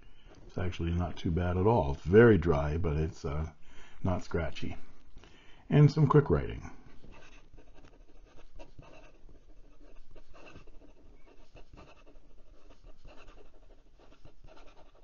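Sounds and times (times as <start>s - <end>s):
pen nib scratching paper: 7.0s - 15.0s.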